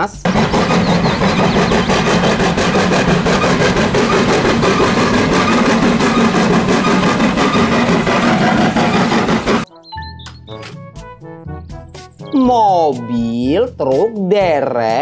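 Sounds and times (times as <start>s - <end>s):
steam locomotive chuffing: 0.0s - 9.7s
train running noise: 0.0s - 9.7s.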